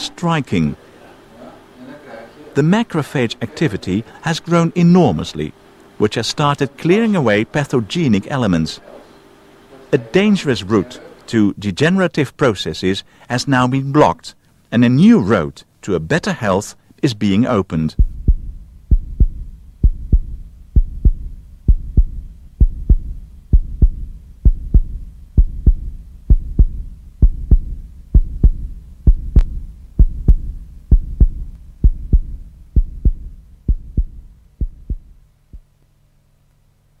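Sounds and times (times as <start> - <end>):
faint low hum: 0.0 - 37.0
heartbeat thumps: 17.9 - 35.8.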